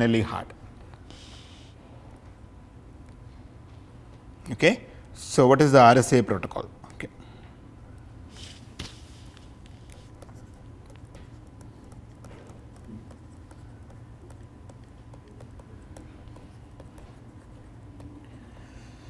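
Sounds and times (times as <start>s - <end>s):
steady low hum: 0.0s - 19.0s
stylus clicking on tablet screen: 9.7s - 18.7s.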